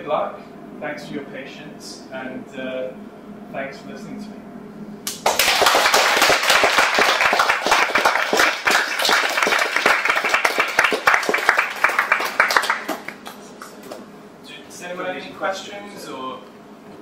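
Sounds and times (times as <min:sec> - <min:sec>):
audience applauding: 0:05.1 - 0:14.0.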